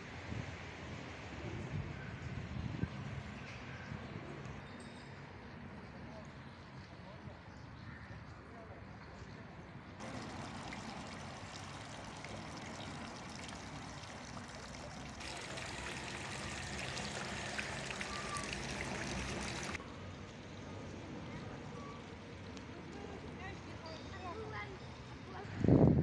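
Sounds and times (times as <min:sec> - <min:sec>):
fountain water splashing: 0:10.0 - 0:19.8.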